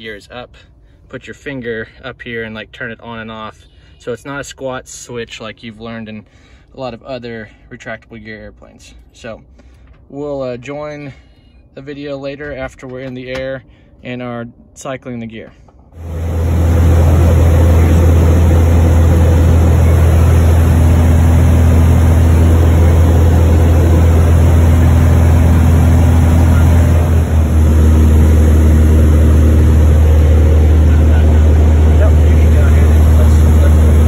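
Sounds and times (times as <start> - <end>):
aircraft engine and propeller drone: 16.0 - 34.0.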